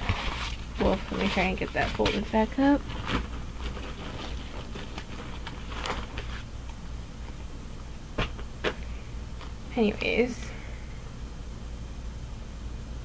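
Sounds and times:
canvas rustling: 0:00.0 - 0:06.6.

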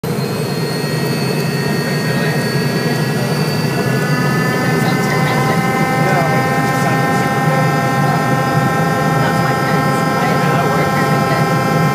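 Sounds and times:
jet engines running up: 0:00.0 - 0:11.9.

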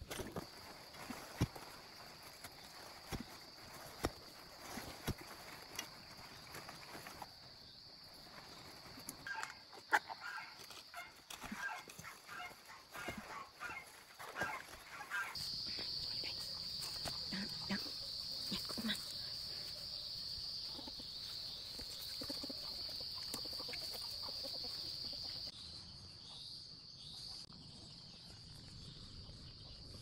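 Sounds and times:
rustling in dry leaves: 0:00.0 - 0:25.5
insects droning: 0:00.0 - 0:25.7.

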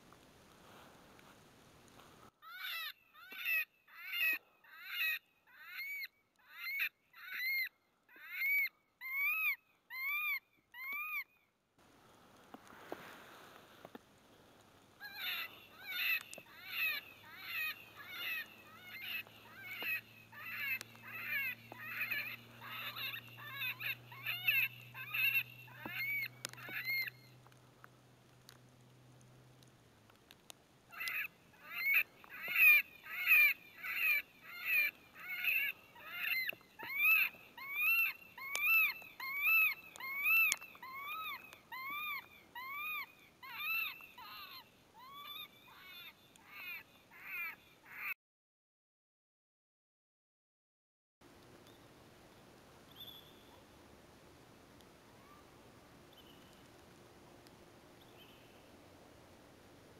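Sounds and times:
electronic animal distress cries: 0:02.4 - 0:10.4, 0:15.0 - 0:27.1, 0:30.9 - 0:48.1.

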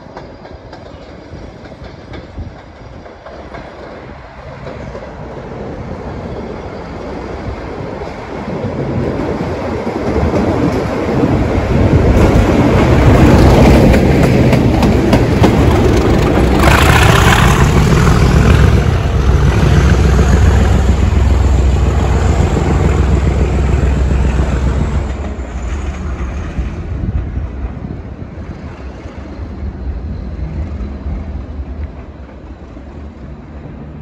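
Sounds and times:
diesel locomotive engine throbbing: 0:10.2 - 0:33.9.

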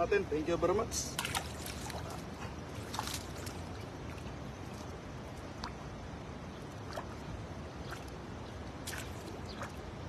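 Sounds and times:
low rushing background noise: 0:00.0 - 0:10.0
fishing net clicks and rustles: 0:01.2 - 0:04.9.

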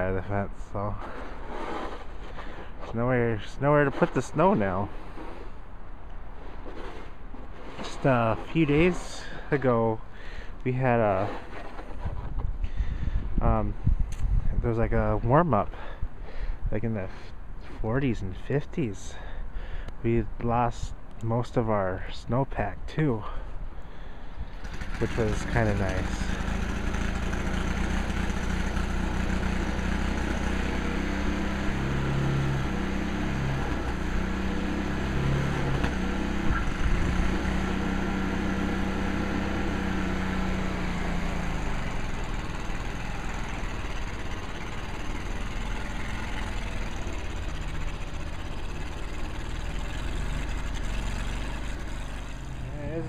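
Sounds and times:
snowblower engine running: 0:24.4 - 0:53.0.

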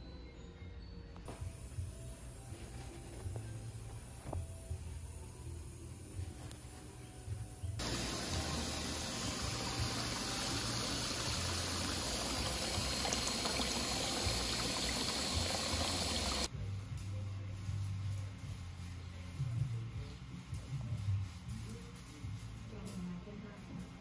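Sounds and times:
water running into a basin: 0:07.8 - 0:16.5.

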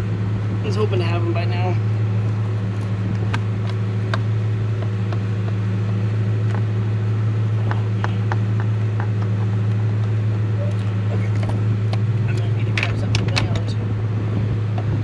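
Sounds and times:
steady low hum: 0:00.0 - 0:15.0
hand tools clicking and tapping: 0:07.6 - 0:10.2.

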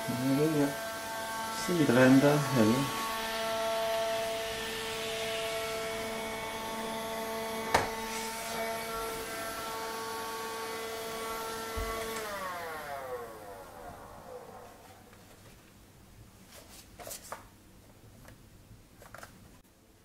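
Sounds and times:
window vacuum whining: 0:00.0 - 0:15.6.

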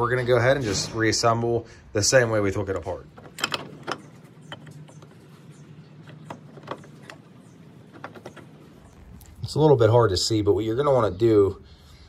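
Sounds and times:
metal parts clicking: 0:03.0 - 0:09.3.

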